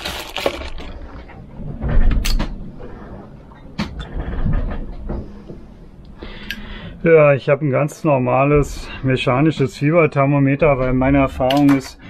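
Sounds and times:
low rumble of boat underway: 0.8 - 10.0.

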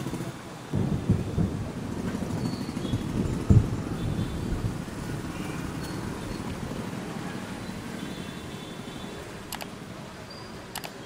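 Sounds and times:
vehicle driving on wet road: 0.0 - 11.0
sharp click: 9.5 - 9.7, 10.7 - 11.0.

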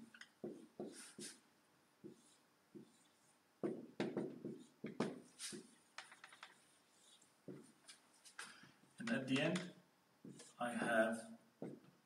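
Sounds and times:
marker strokes on whiteboard: 0.1 - 1.4, 2.0 - 9.6, 10.2 - 11.9.

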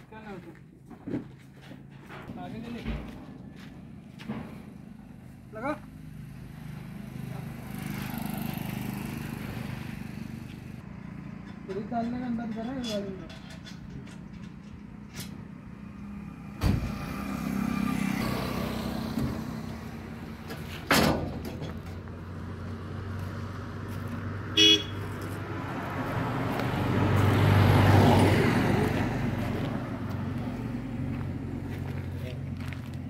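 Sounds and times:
vehicle humming: 14.0 - 33.0
vehicle horn toot: 24.6 - 25.1.

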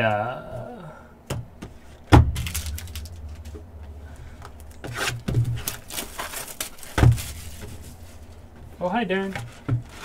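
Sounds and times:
steady low hum: 0.0 - 10.0
plastic wrap crinkling: 2.3 - 3.6, 4.5 - 8.4.

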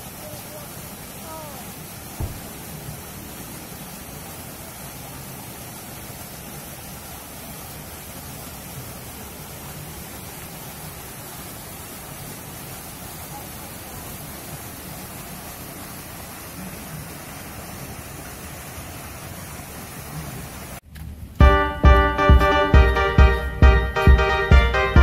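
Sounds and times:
steady outdoor hiss: 0.0 - 25.0
loud keyboard music: 21.4 - 25.0.

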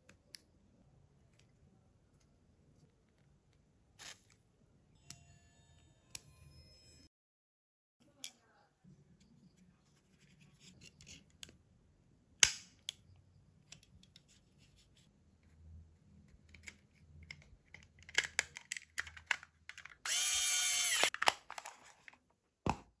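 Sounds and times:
battery cover scraping: 4.0 - 4.4, 16.6 - 22.2.

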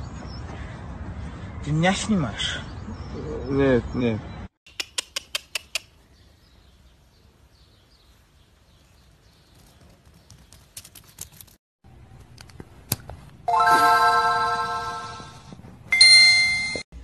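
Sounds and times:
bright bell-like chime: 13.5 - 16.8.

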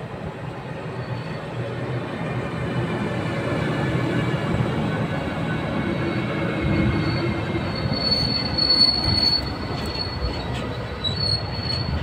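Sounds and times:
freight train rolling: 0.0 - 12.0
high wheel squeal: 6.1 - 12.0.

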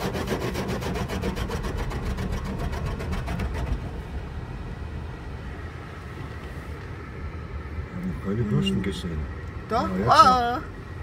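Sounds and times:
car wash water jets pulsing hiss: 0.0 - 11.0
low rumble: 0.9 - 8.0.

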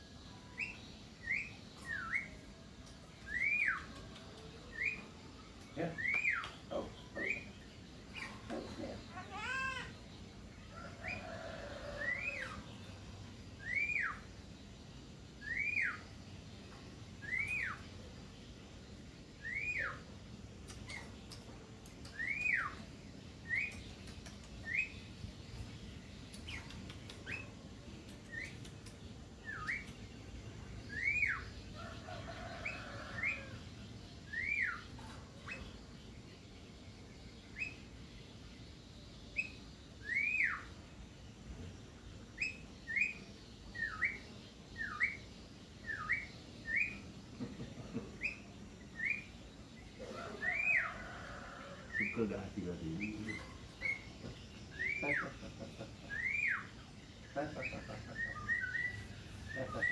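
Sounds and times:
myna whistling: 3.3 - 3.9, 15.4 - 16.0, 19.4 - 20.0.

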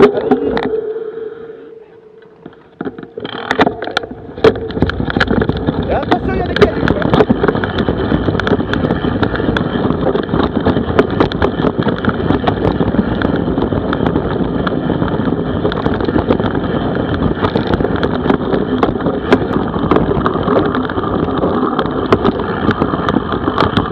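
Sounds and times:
wind rushing over microphone: 0.0 - 23.9
bike rattling on dirt trail: 2.1 - 23.9.

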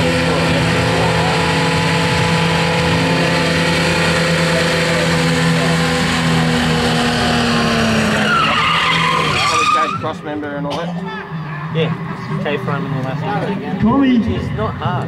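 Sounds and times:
car engine revving in burnout: 0.0 - 10.4.

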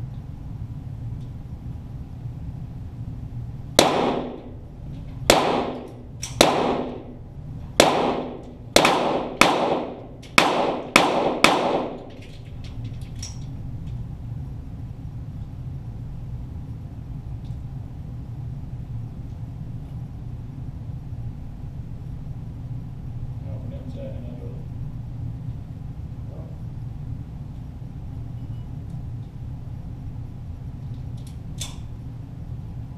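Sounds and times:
pistol shots with echo: 3.8 - 4.6, 5.3 - 7.2, 7.8 - 12.1.

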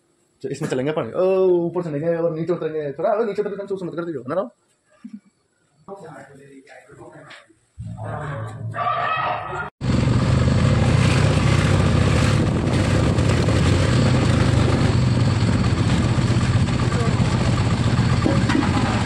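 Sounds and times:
vehicle engine rumble: 9.8 - 19.0.

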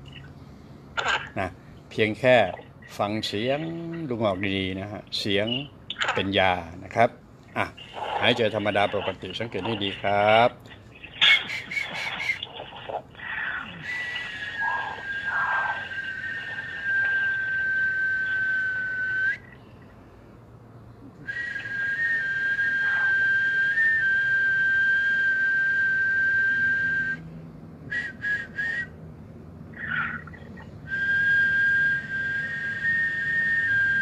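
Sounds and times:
short whistles: 7.8 - 19.7, 21.2 - 27.3, 27.9 - 29.0, 29.7 - 34.0
man whistling long notes: 11.5 - 12.5, 13.7 - 19.6, 21.2 - 27.3, 27.9 - 29.0, 30.9 - 34.0.

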